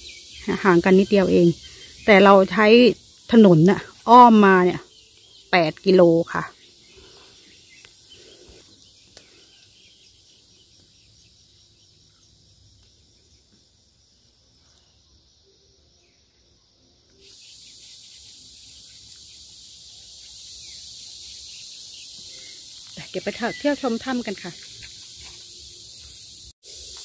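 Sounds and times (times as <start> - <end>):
high-pitched insect chorus: 0.0 - 27.0.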